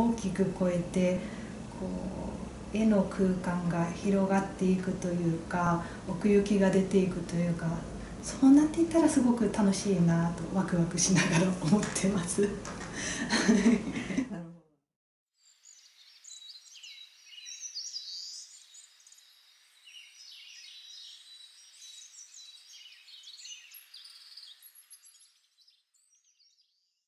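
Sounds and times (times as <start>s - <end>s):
birds chirping: 15.6s - 26.6s.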